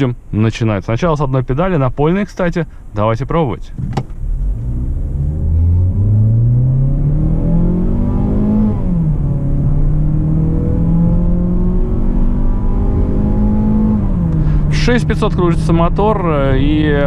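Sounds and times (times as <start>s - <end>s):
car engine revving hard: 4.2s - 17.0s.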